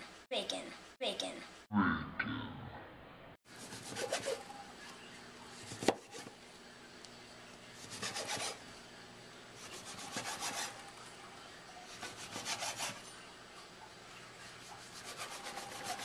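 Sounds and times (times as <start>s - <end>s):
knife sawing through bacon: 3.5s - 4.5s, 7.8s - 8.6s, 9.6s - 10.9s, 11.9s - 13.1s, 14.5s - 16.0s
blade scraping plastic cutting board: 3.6s - 4.5s, 7.8s - 8.6s, 9.6s - 10.9s, 12.0s - 13.0s, 14.8s - 16.0s.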